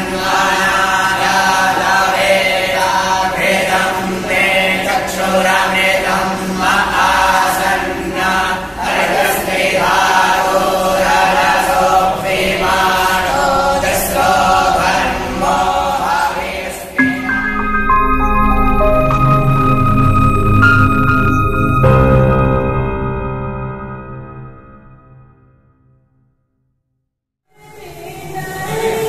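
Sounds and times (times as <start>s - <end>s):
boys chanting a prayer: 0.0s - 17.0s.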